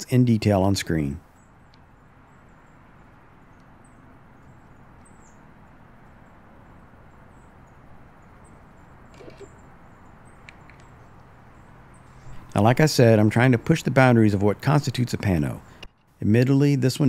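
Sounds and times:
steady low hiss: 0:00.0 - 0:17.0
high bird chirps: 0:01.3 - 0:12.5
soft clicks: 0:10.4 - 0:11.0.

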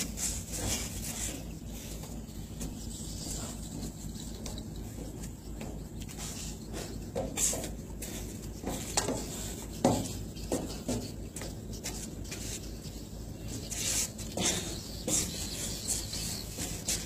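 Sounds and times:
feet knocking and scuffing: 0:00.0 - 0:17.0
steady low hum: 0:00.0 - 0:17.0.

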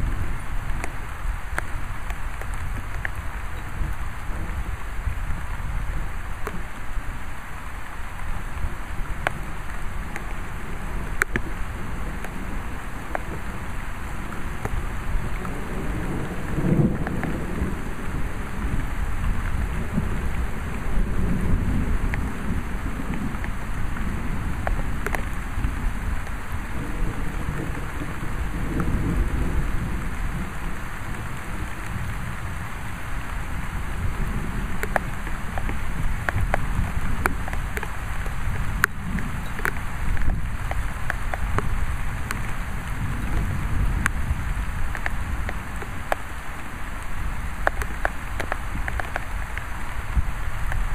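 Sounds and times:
steady rain: 0:00.0 - 0:50.9
rolling thunder: 0:09.0 - 0:46.1.

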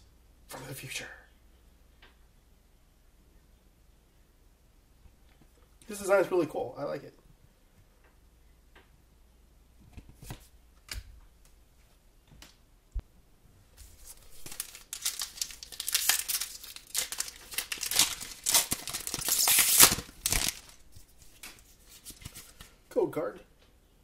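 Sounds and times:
foil wrapper crinkling and tearing: 0:13.8 - 0:22.6.

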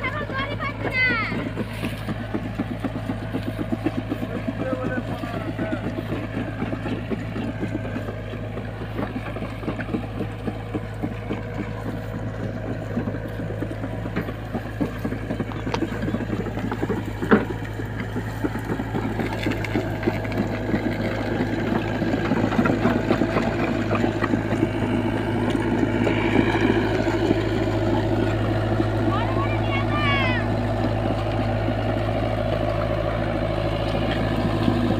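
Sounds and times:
excavator diesel engine running: 0:00.0 - 0:34.9.

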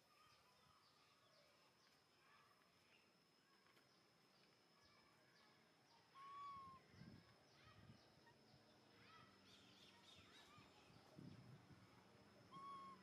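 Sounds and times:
faint high-pitched whine: 0:00.0 - 0:13.0
birds chirping and calling: 0:12.5 - 0:13.0.

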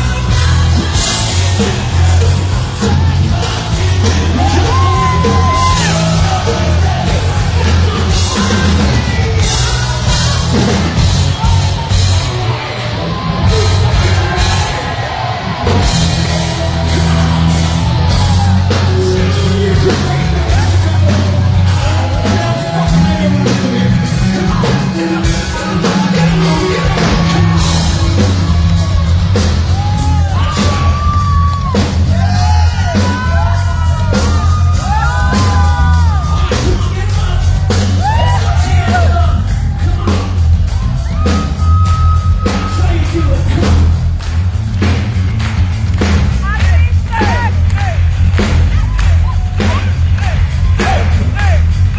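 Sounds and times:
person singing and yelling: 0:00.0 - 0:10.7, 0:48.7 - 0:51.8
hard rock band playing: 0:00.0 - 0:51.9.

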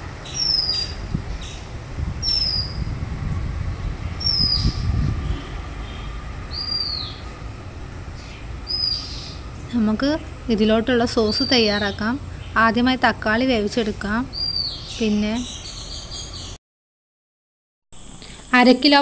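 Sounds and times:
songbird whistled call: 0:00.3 - 0:01.6, 0:02.2 - 0:02.9, 0:04.2 - 0:04.8, 0:06.5 - 0:07.2.

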